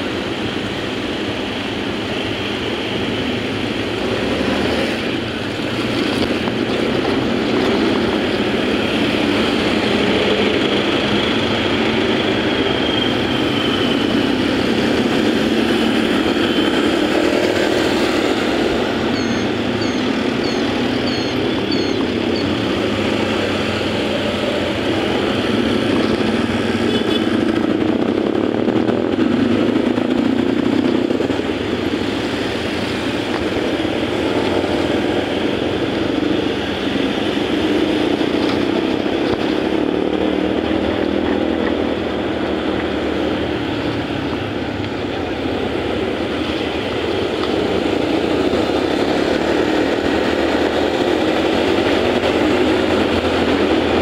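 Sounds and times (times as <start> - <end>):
road and traffic noise: 0.0 - 54.0
scooter engine: 3.0 - 54.0.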